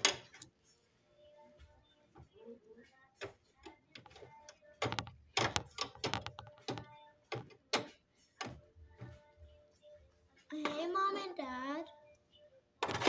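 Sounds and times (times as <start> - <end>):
plastic toys knocking on floor: 4.8 - 6.9.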